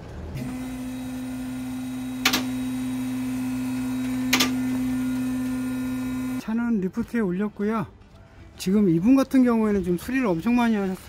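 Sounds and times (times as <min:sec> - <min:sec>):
car lift motor humming: 0:00.4 - 0:06.4.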